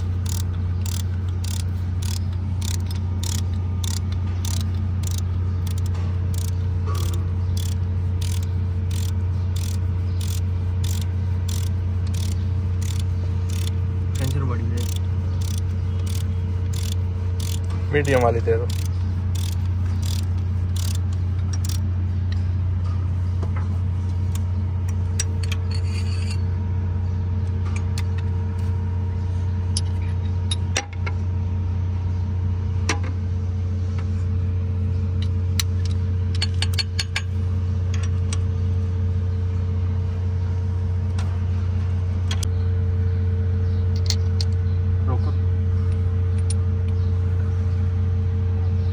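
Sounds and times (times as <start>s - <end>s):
machine droning: 0.0s - 48.9s.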